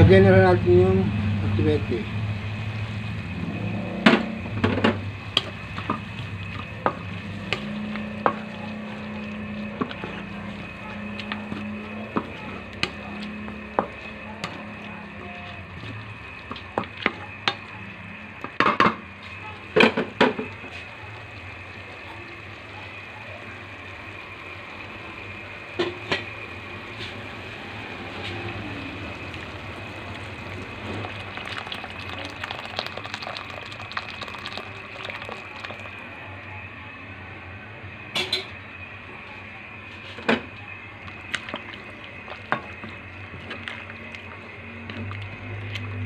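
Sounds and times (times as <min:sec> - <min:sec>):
low hum: 0:00.0 - 0:18.4, 0:40.6 - 0:46.0.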